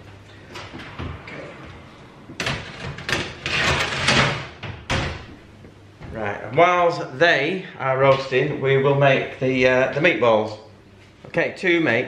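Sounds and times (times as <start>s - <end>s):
oven door shutting: 0.5s - 5.3s.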